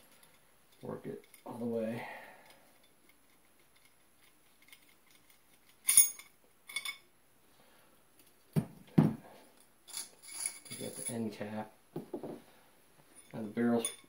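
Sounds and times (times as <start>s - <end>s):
metallic clink: 2.4s - 7.1s, 9.6s - 11.2s, 13.2s - 14.0s.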